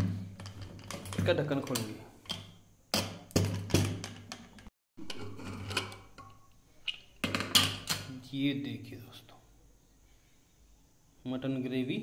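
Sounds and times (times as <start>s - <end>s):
metal lid clanks and knocks: 3.0s - 6.5s, 7.2s - 8.1s.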